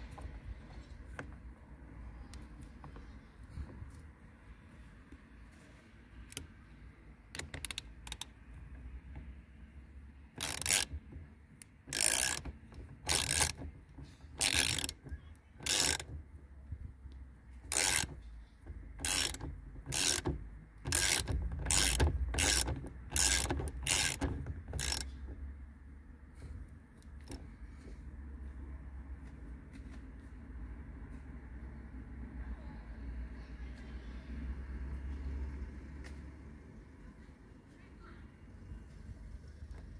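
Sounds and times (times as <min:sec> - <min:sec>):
ratchet wrench rasping: 0:10.4 - 0:16.2, 0:17.7 - 0:25.3.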